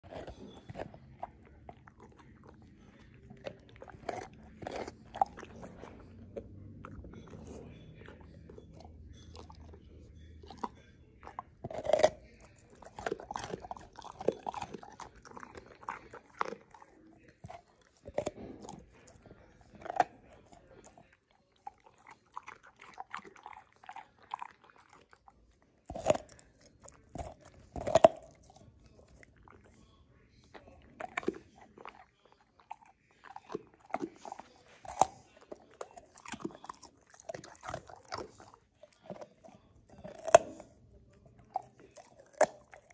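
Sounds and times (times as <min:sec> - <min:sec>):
dog crunching carrot: 0:00.0 - 0:42.9.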